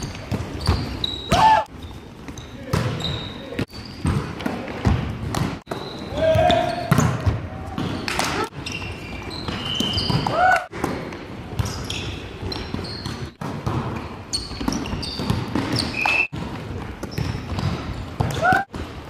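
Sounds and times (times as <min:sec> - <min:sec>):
sneakers squeaking on gym floor: 0:00.0 - 0:19.0
voices echoing in hall: 0:06.0 - 0:06.9.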